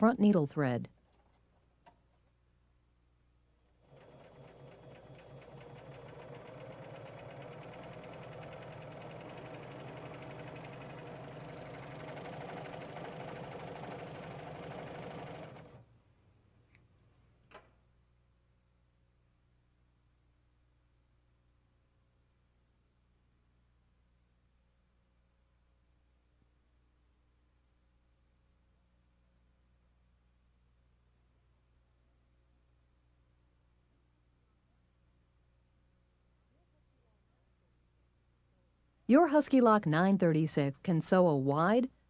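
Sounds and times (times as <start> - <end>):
serger sewing machine running: 3.8 - 15.9.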